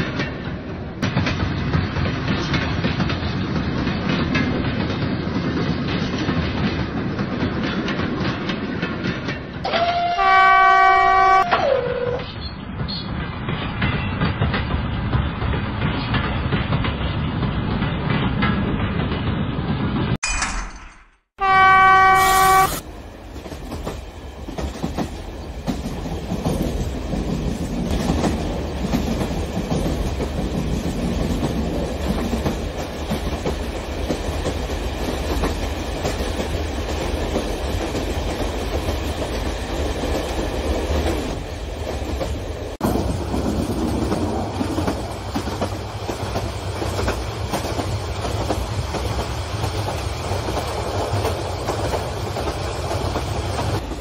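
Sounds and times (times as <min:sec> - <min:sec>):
model train horn: 0:09.7 - 0:12.2, 0:21.4 - 0:22.8.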